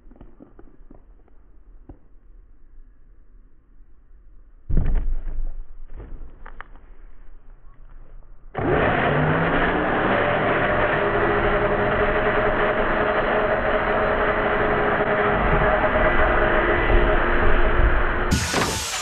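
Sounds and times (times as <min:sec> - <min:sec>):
belt sander running: 0:08.6 - 0:19.0.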